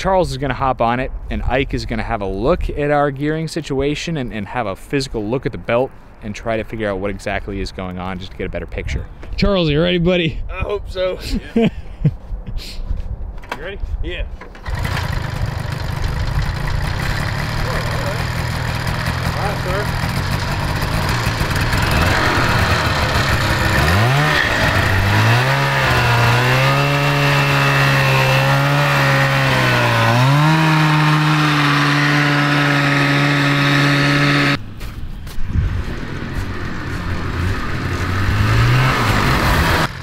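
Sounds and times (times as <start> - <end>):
two-stroke engine revving: 14.6 - 34.6, 35.9 - 40.0.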